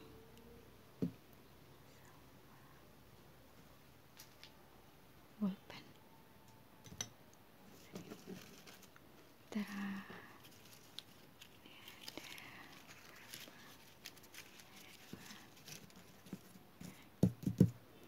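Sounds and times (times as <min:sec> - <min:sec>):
paper strips rustling: 0:07.7 - 0:17.1
hands patting paper: 0:07.8 - 0:09.0, 0:09.6 - 0:17.8.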